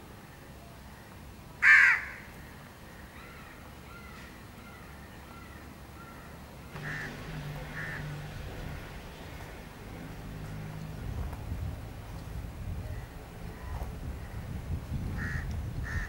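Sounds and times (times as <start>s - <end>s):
crow cawing: 1.6s - 2.3s, 3.1s - 8.3s, 15.2s - 16.0s.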